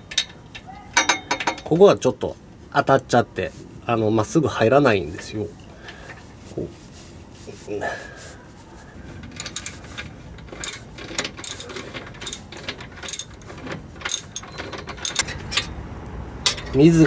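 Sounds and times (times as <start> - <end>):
metal tools clinking: 0.0 - 1.8, 9.2 - 15.8, 16.4 - 17.0.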